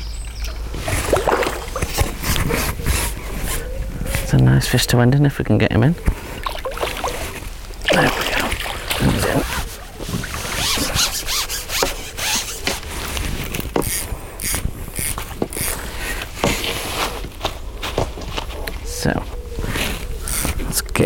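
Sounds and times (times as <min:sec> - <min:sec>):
fish splashing at surface: 0:00.7 - 0:02.3.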